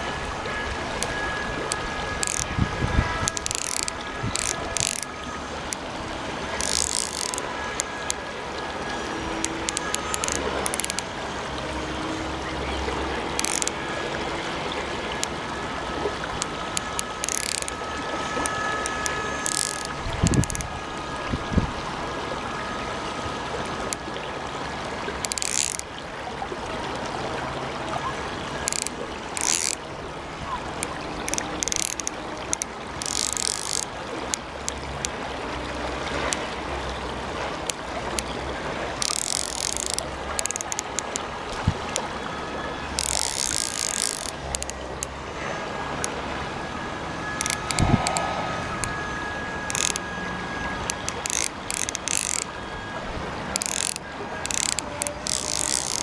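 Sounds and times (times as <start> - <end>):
shallow river water rushing: 0.0 - 56.0
fishing reel ratchet clicking: 0.9 - 8.3, 8.9 - 11.1, 13.2 - 13.8, 16.3 - 20.8, 25.1 - 25.9, 28.6 - 29.8, 30.7 - 35.2, 37.6 - 42.0, 42.9 - 45.2, 47.4 - 52.6, 53.5 - 56.0.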